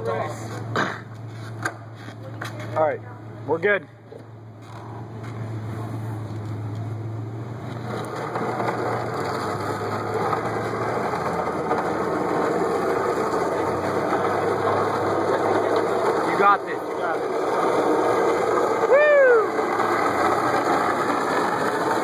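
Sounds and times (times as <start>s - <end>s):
car engine humming: 0.0s - 22.0s
even rush of noise: 7.6s - 22.0s.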